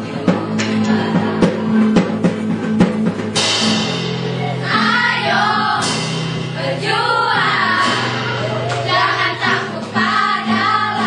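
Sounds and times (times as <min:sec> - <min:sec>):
choir singing: 0:04.4 - 0:11.0.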